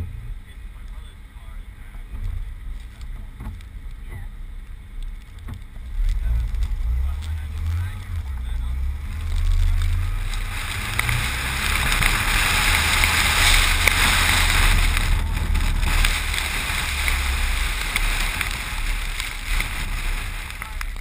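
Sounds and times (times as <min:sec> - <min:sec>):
engine and tyre rumble: 0:00.0 - 0:21.0
faint ticks: 0:02.1 - 0:21.0
wind and snow spray hiss: 0:05.9 - 0:21.0.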